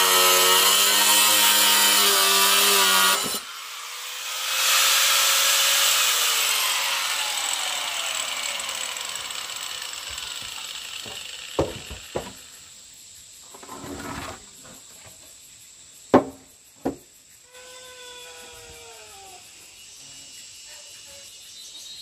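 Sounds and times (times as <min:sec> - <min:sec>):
power drill winding down: 0:00.0 - 0:12.6
scraping on wood: 0:10.1 - 0:12.5, 0:13.4 - 0:15.3
knocks on wooden frame: 0:10.4 - 0:12.4, 0:16.1 - 0:17.1
insect chirring: 0:14.4 - 0:22.0.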